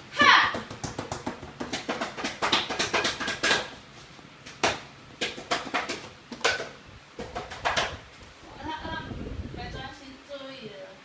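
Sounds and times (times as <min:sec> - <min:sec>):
hands banging on plastic stool: 0:00.4 - 0:03.8, 0:04.5 - 0:08.0.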